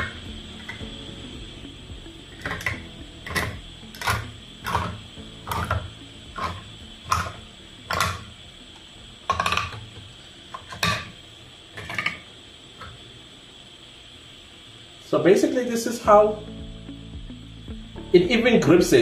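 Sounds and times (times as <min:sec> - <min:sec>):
tin opener crunching clicks: 0:02.3 - 0:08.3, 0:09.2 - 0:11.2.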